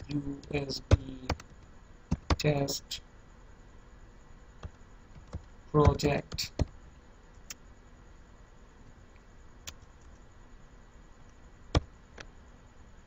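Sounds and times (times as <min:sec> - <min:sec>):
keyboard and mouse clicks: 0:00.0 - 0:02.5, 0:04.6 - 0:06.7
low steady hiss: 0:00.0 - 0:13.0.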